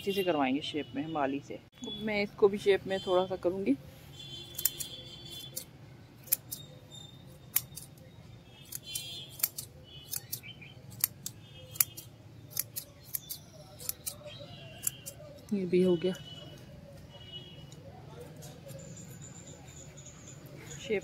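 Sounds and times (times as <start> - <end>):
scissors snipping plant stems: 4.5 - 6.7, 7.5 - 8.0, 8.6 - 15.8.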